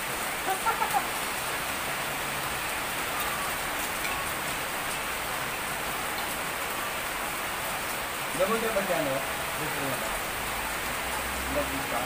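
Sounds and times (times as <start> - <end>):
steady rain falling: 0.0 - 12.0.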